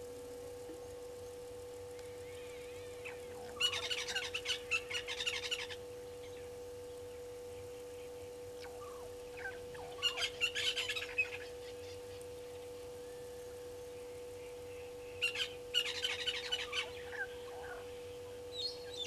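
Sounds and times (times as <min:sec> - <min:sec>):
steady hum: 0:00.0 - 0:19.0.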